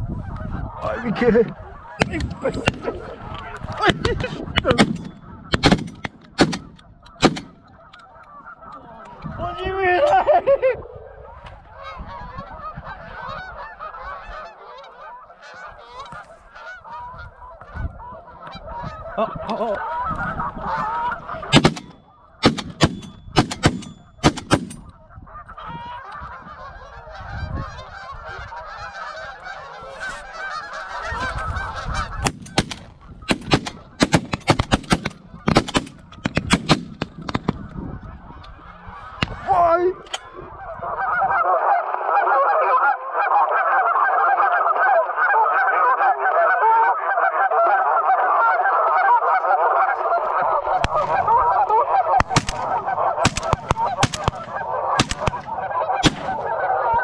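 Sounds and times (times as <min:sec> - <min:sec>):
geese honking: 0:00.0 - 0:57.0
shotgun shots: 0:03.9 - 0:07.6, 0:21.5 - 0:24.9, 0:32.2 - 0:37.6, 0:50.8 - 0:56.6.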